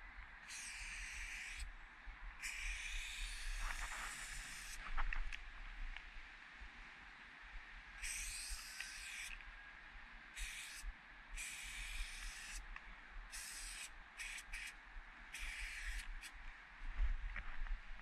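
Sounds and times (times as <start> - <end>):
spray paint can hissing: 0.5 - 1.7, 2.4 - 4.8, 8.0 - 9.3, 10.4 - 10.8, 11.4 - 12.6, 13.3 - 16.3.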